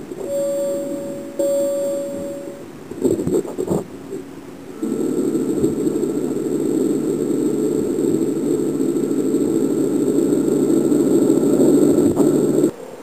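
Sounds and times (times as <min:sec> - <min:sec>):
low hum: 0:00.0 - 0:12.7
muffled garbled noise: 0:02.8 - 0:12.7.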